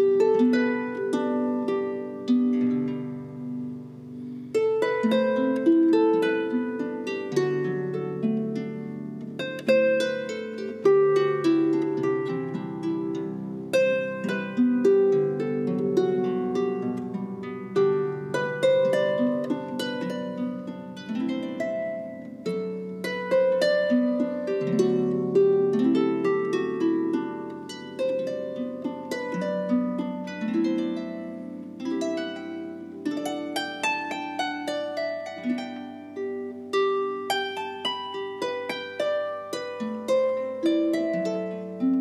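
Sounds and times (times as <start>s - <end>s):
solo harp melody: 0.0s - 42.0s.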